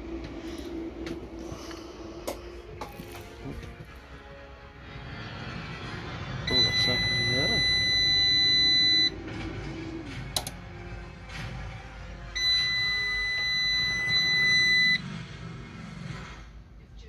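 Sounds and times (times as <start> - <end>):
high-pitched alarm beeps: 6.5 - 9.2, 12.4 - 15.0.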